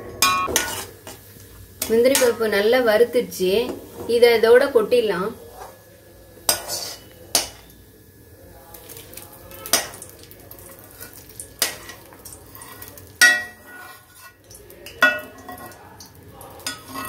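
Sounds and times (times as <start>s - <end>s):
ladle scraping steel pan: 11.0s - 14.4s, 16.6s - 17.0s.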